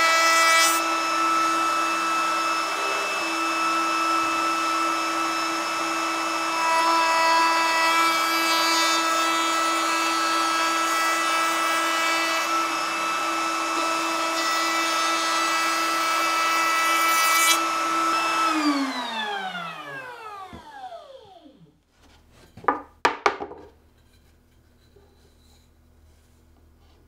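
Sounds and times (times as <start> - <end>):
router cutting wood: 0.0 - 21.8
router whine spinning down: 0.7 - 9.2, 11.8 - 16.7, 17.5 - 21.8
wood knocking: 22.6 - 23.8.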